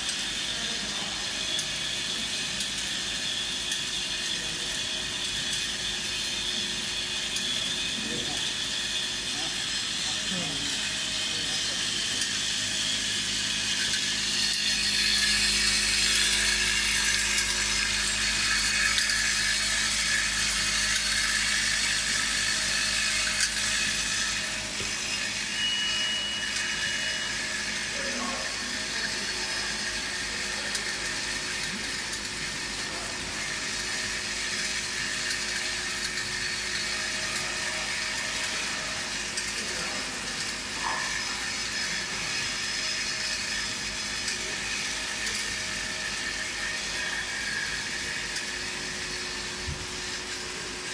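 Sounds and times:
machine humming and hissing: 0.0s - 50.9s.

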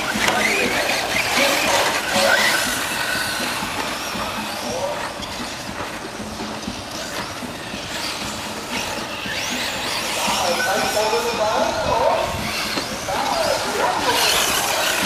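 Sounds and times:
rc truck motors whining: 0.0s - 15.0s.

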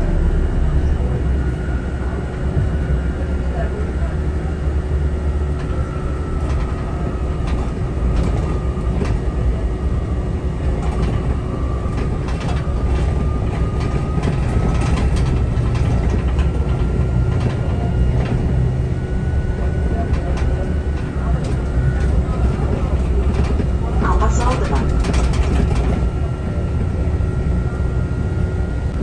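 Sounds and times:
thin wavering whine: 0.0s - 10.7s
bus engine and road rumble: 0.0s - 29.0s.

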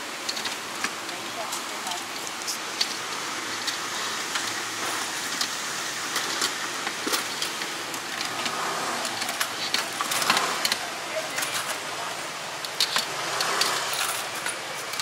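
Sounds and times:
utensils clinking against pots: 6.1s - 15.0s.

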